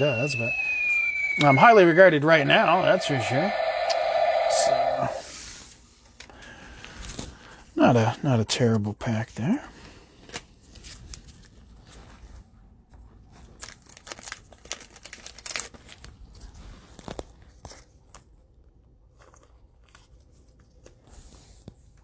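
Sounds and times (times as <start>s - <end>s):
plastic wrapper crinkling: 13.6s - 16.2s.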